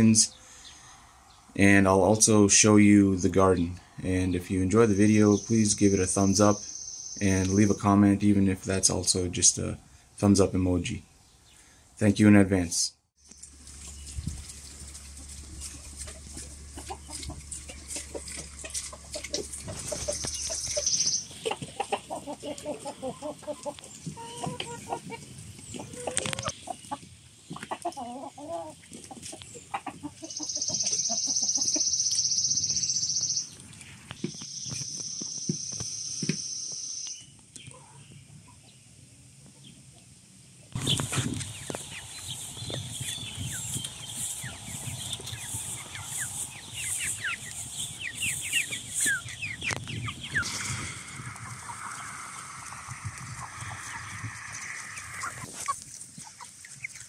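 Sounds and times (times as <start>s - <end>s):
chicks peeping: 1.6s - 11.0s, 13.6s - 38.8s, 40.7s - 57.0s
hens clucking: 13.7s - 32.0s, 40.8s - 57.0s.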